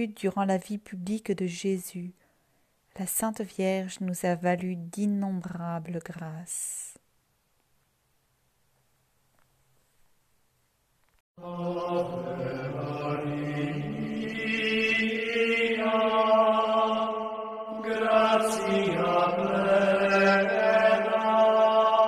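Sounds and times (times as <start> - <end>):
person chanting sustained notes: 11.4 - 22.0.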